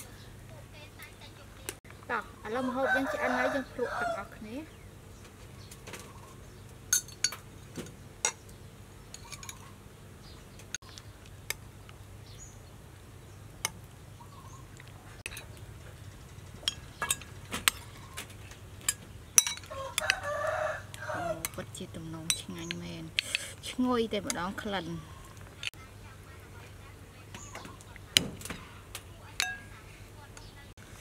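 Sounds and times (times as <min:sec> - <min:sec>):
metal spoons clinking on ceramic bowls: 0:06.9 - 0:07.4, 0:09.1 - 0:09.7, 0:16.6 - 0:18.1, 0:18.8 - 0:20.3, 0:21.3 - 0:23.3, 0:29.4 - 0:29.8.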